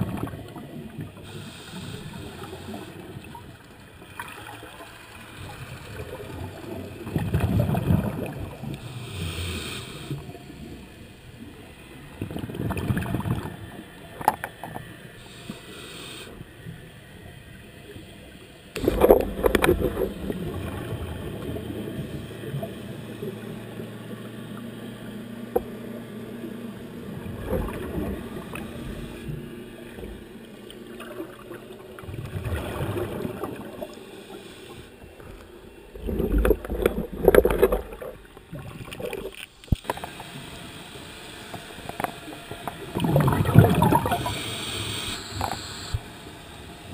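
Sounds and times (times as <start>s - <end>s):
underwater exhalation bubbles: 6.0s - 8.7s, 32.1s - 33.9s, 35.9s - 39.3s, 42.8s - 44.4s.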